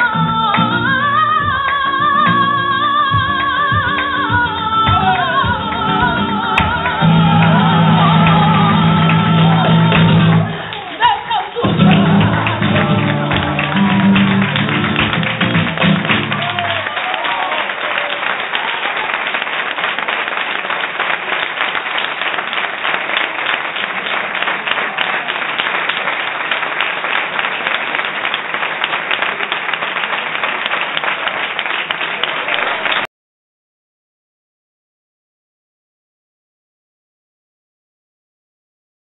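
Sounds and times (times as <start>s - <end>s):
voices singing over guitar: 0.0s - 14.7s
flamenco guitar chords: 0.0s - 16.8s
audience applauding: 0.0s - 33.1s.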